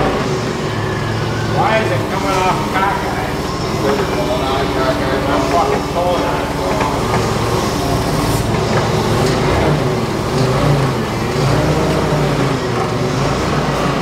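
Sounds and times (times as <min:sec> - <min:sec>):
large engine running: 0:00.0 - 0:14.0.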